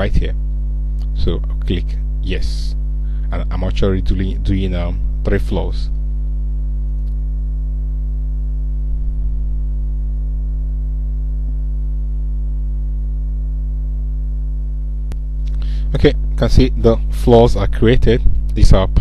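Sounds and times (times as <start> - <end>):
electrical mains hum: 0.0 - 19.0
click: 6.9 - 7.2, 15.1 - 15.6.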